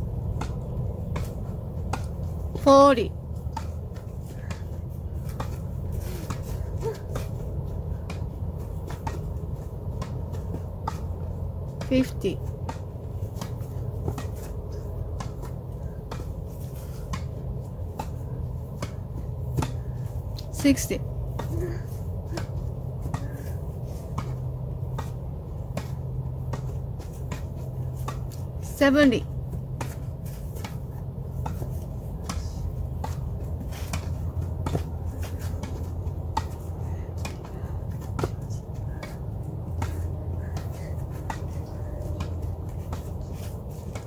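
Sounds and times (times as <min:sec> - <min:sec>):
low background rumble: 0:00.0 - 0:44.0.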